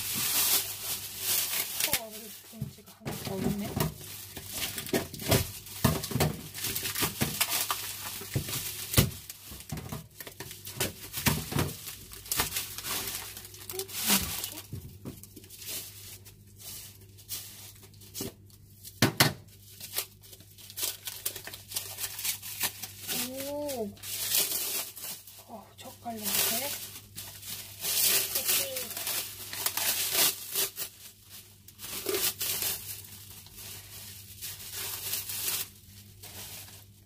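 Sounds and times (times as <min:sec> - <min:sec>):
plastic wrap crinkling and tearing: 0:00.0 - 0:37.0.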